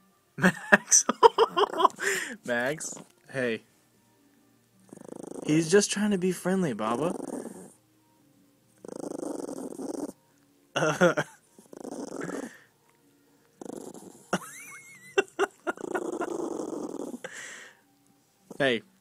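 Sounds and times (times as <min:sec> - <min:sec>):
cat purring: 0:04.8 - 0:05.9, 0:06.5 - 0:07.8, 0:08.8 - 0:10.3, 0:11.5 - 0:12.7, 0:13.5 - 0:14.4, 0:15.1 - 0:17.3
cat vocal sound: 0:08.8 - 0:10.2, 0:15.2 - 0:17.2.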